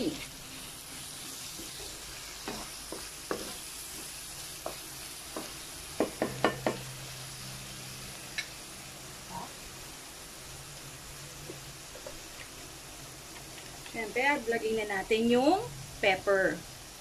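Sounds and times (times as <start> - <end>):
chicken sizzling in frying pan: 0.0 - 17.0
spatula knocking against pan: 2.5 - 3.6, 4.6 - 6.8.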